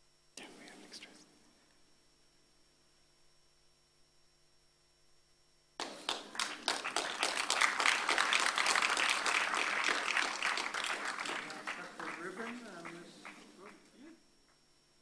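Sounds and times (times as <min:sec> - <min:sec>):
faint hum: 0:00.0 - 0:15.0
audience applause: 0:05.8 - 0:13.9.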